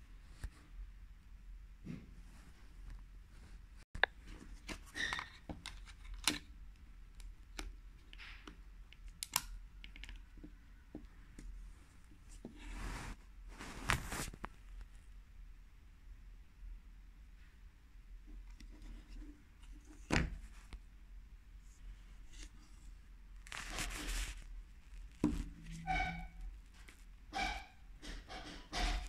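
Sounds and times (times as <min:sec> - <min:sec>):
plastic phone parts clicking: 0:04.0 - 0:06.5, 0:07.2 - 0:10.4
plastic rubbing scrapes: 0:12.3 - 0:14.5, 0:22.2 - 0:29.0.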